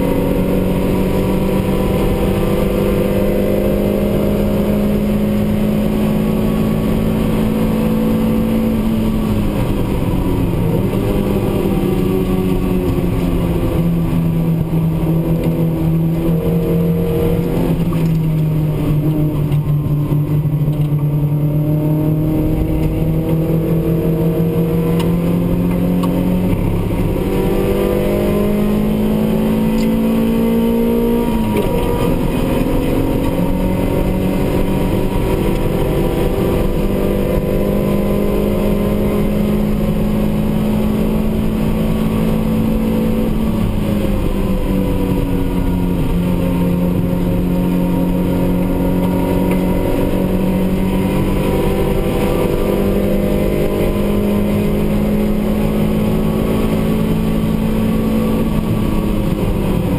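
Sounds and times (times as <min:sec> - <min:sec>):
racing car engine under load: 0:00.0 - 0:59.9.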